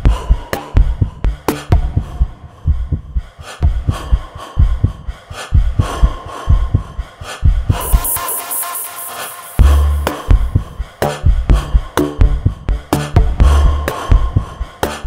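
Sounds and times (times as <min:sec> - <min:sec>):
hissing high sweep: 0:07.8 - 0:10.7
electronic music with bass drum: 0:07.8 - 0:15.0.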